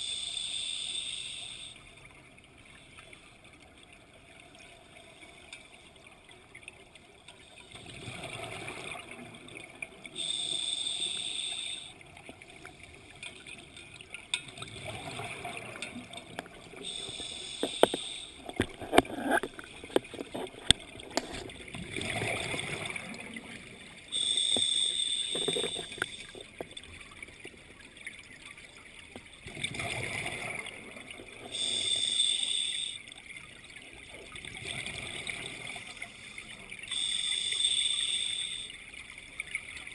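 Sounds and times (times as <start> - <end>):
hissing regulator inhale: 0.0 - 1.8, 10.2 - 12.0, 16.8 - 18.6, 24.1 - 26.3, 31.5 - 33.0, 36.1 - 38.8.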